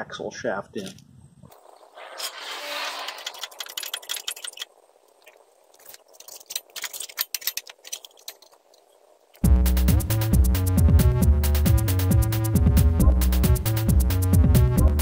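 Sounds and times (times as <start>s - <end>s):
metallic clinking of wheel parts: 5.8s - 9.0s
electronic music with beat: 9.4s - 15.0s.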